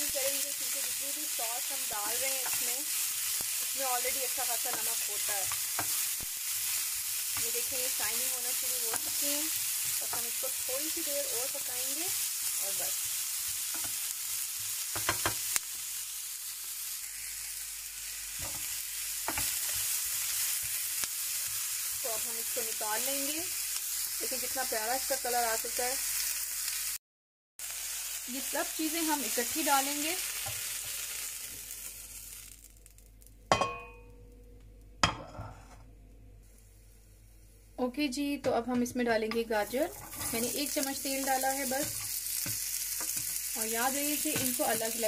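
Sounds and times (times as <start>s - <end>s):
peppers sizzling in oil: 0.0s - 27.0s, 27.6s - 35.2s, 36.4s - 45.0s.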